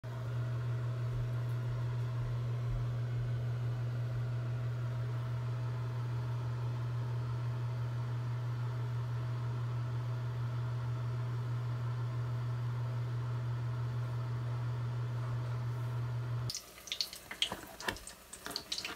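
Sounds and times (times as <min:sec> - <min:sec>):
low machine hum: 0:00.0 - 0:18.9.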